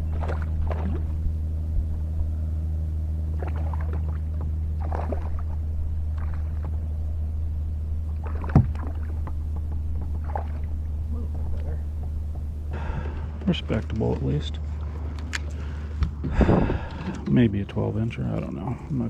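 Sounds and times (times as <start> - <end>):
steady low hum: 0.0 - 19.0
fish splashing at surface: 3.4 - 6.7.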